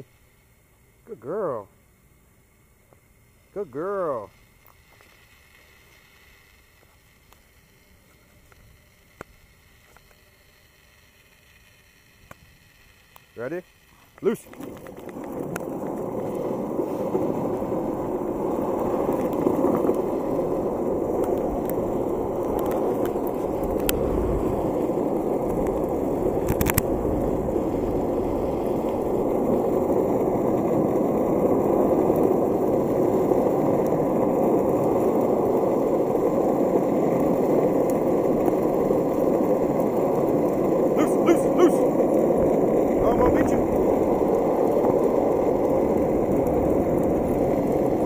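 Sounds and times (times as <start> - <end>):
longboard wheels rumbling on asphalt: 0.0 - 48.0.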